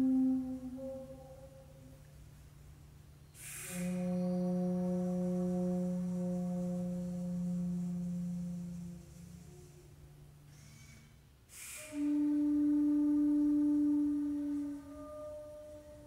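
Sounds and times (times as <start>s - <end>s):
long low flute note: 0.0s - 2.1s, 3.4s - 16.0s
air hiss: 3.2s - 13.3s.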